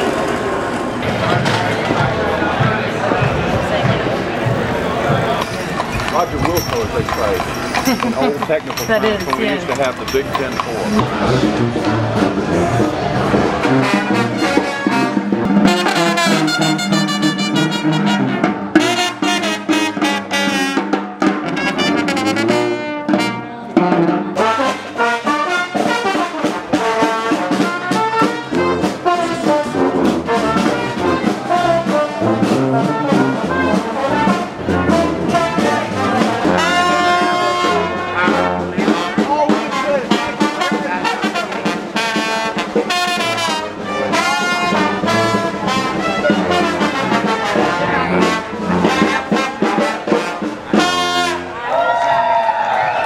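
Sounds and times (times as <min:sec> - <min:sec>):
brass band jazz: 0:03.8 - 0:52.0
horns playing: 0:04.8 - 0:52.1
bass line: 0:10.5 - 0:20.6.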